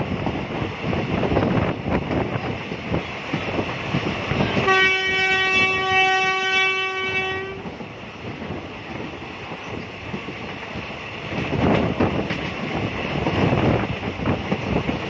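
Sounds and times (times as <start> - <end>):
passenger train running on track: 0.0 - 15.0
train horn blast: 4.4 - 7.7.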